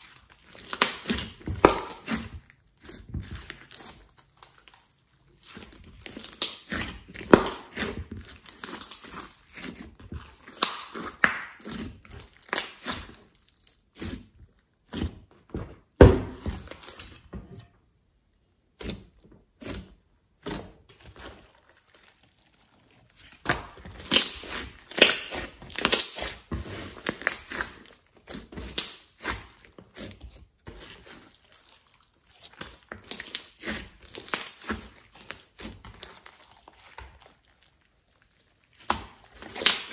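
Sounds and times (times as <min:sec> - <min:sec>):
slime snapping: 0:10.5 - 0:11.6, 0:23.5 - 0:26.4
slime squeezed by hand: 0:21.1 - 0:39.9.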